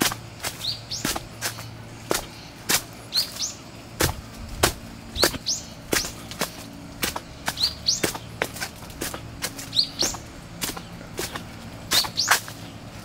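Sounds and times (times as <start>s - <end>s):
footsteps on leaf-strewn stone steps: 0.0s - 13.0s
bird chirping: 0.5s - 3.7s, 5.0s - 6.4s, 7.3s - 8.5s, 9.5s - 12.9s.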